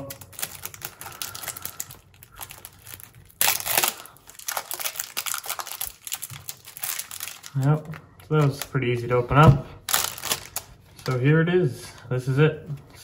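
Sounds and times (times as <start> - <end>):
cellophane ripping: 0.0 - 8.8, 9.8 - 11.2
cellophane crinkling: 0.0 - 11.4.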